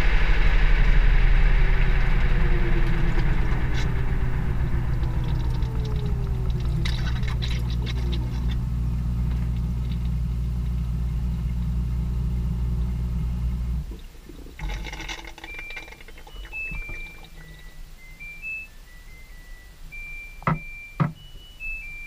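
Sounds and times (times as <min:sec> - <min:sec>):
falling motor whine: 0:00.0 - 0:14.0
washing machine humming: 0:00.0 - 0:22.0
electronic beeping tune: 0:02.5 - 0:08.6, 0:14.6 - 0:22.0
clicks and rattles: 0:04.9 - 0:08.6, 0:13.9 - 0:17.6.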